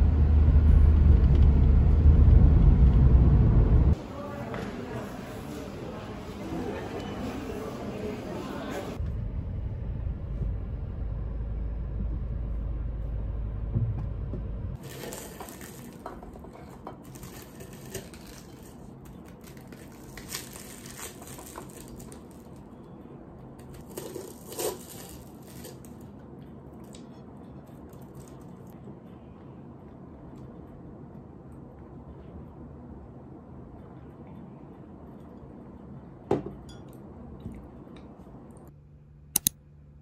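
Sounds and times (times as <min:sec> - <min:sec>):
low rumble inside car: 0:00.0 - 0:04.0, 0:09.0 - 0:14.8
pastry crust crunching: 0:14.8 - 0:22.8, 0:23.6 - 0:28.8.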